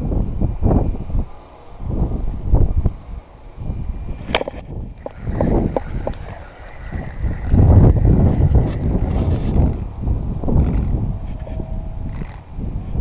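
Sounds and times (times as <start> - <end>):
wind rumbling on microphone: 0.0 - 13.0
sleeve rubbing camera: 4.2 - 9.9, 10.6 - 12.4
sharp clicks: 10.6 - 11.0, 12.1 - 12.4.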